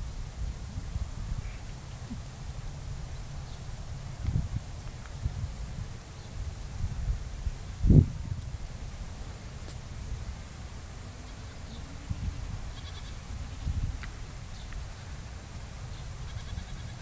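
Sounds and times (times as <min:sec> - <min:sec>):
low microphone rumble: 0:00.0 - 0:16.3
goat bleating: 0:11.1 - 0:13.6, 0:16.2 - 0:17.0.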